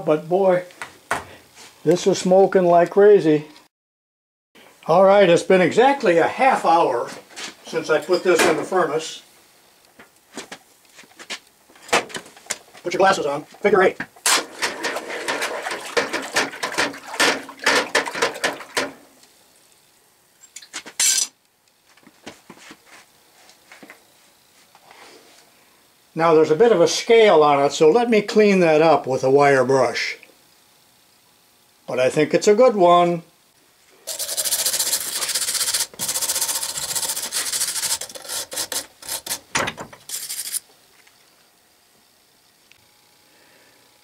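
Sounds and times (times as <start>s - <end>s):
wire brush scrubbing steel: 34.0s - 39.5s, 40.1s - 40.6s
metal scraping rasp: 34.1s - 40.6s.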